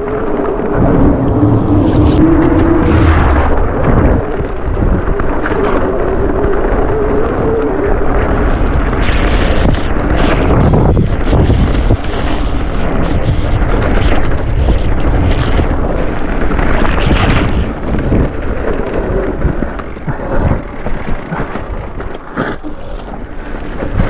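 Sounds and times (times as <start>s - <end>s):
wind buffeting microphone: 0.0s - 24.0s
bike tyres and frame rattling: 18.7s - 24.0s.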